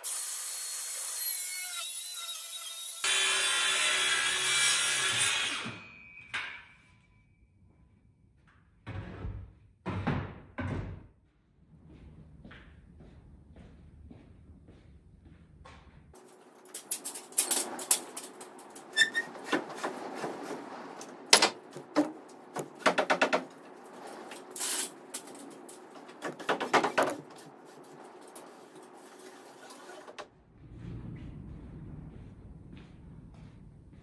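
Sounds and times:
aluminium ladder clattering: 0:16.2 - 0:30.1.

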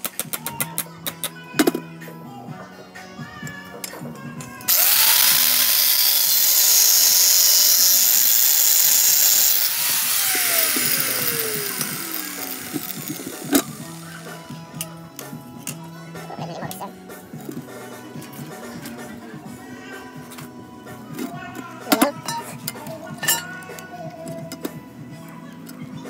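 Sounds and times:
angle grinder cutting steel rod: 0:04.7 - 0:14.5.

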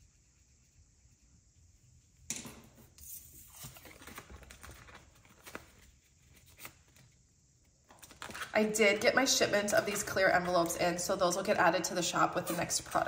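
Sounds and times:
plastic sheets crinkling: 0:03.4 - 0:07.0, 0:07.9 - 0:08.6.

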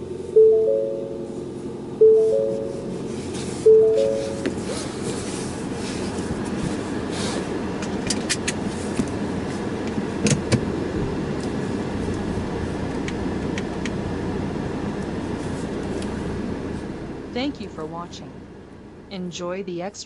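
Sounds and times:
car engine idling: 0:00.0 - 0:08.0.

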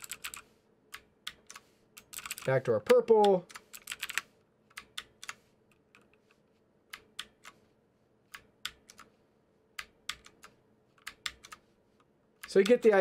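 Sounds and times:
mechanical keyboard keys clicking: 0:00.0 - 0:06.1, 0:08.3 - 0:09.1.

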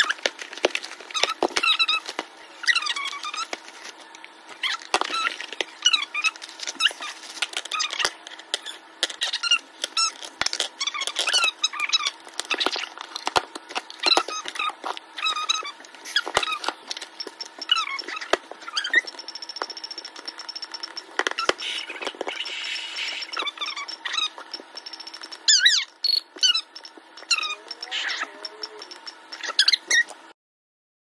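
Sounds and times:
plastic packaging squeaking: 0:00.0 - 0:30.3
steady high tone: 0:18.8 - 0:29.6.

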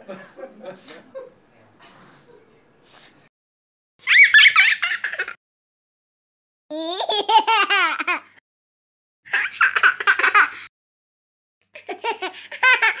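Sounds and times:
high-pitched laughter: 0:04.0 - 0:05.4.

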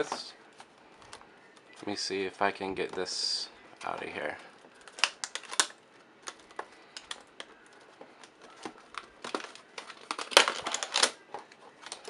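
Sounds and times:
plastic packaging crinkling: 0:03.8 - 0:12.0.

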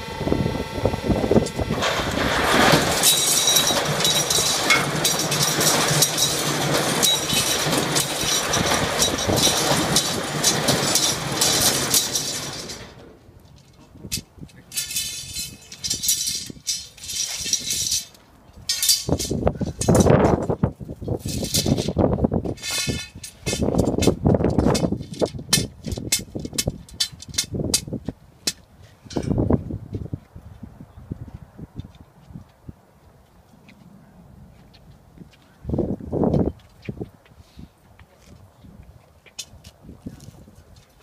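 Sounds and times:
machine humming and clicking: 0:00.0 - 0:18.0
metallic clatter and clinks: 0:02.7 - 0:20.5.

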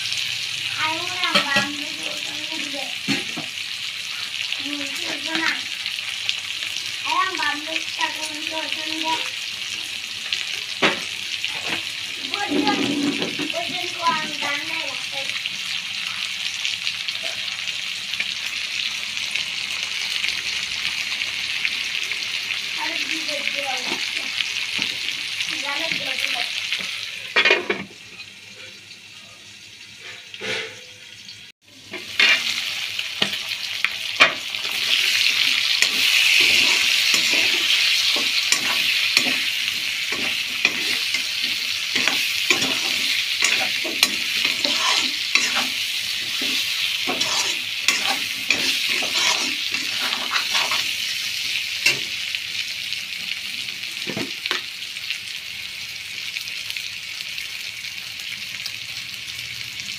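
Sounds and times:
meat sizzling in a wok: 0:00.0 - 0:59.9
metal spoon scraping a pan: 0:30.0 - 0:31.0, 0:31.9 - 0:33.4, 0:34.2 - 0:51.2.

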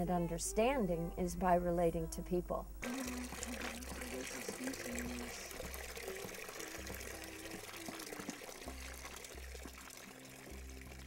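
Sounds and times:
water filling plastic bucket: 0:02.8 - 0:11.0.

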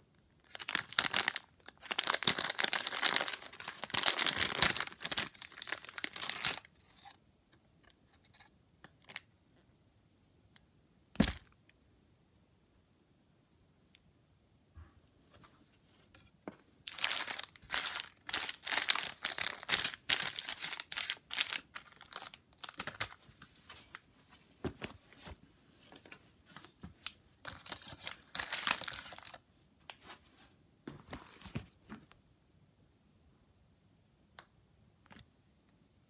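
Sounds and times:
plastic wrappers crinkling: 0:00.4 - 0:06.8, 0:16.8 - 0:23.3, 0:27.0 - 0:29.4.

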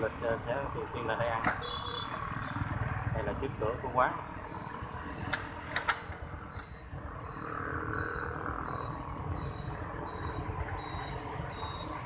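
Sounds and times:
street traffic: 0:00.0 - 0:12.0
short high beeps: 0:01.6 - 0:02.6, 0:06.5 - 0:12.0.

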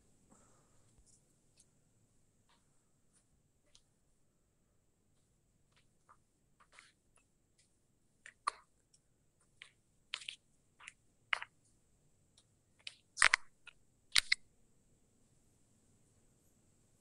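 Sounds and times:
marker clicks and scrapes: 0:06.1 - 0:07.3, 0:08.2 - 0:08.7, 0:09.4 - 0:11.6, 0:12.8 - 0:14.4.

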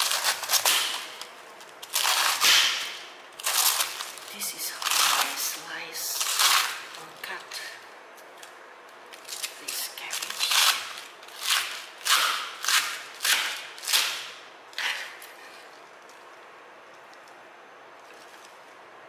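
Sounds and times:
knife cutting cabbage on board: 0:10.2 - 0:15.6.

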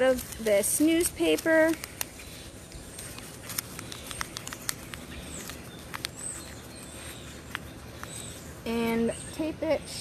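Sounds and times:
newspaper crackling and rustling: 0:00.0 - 0:09.0
faint bird chirps: 0:02.1 - 0:10.0.

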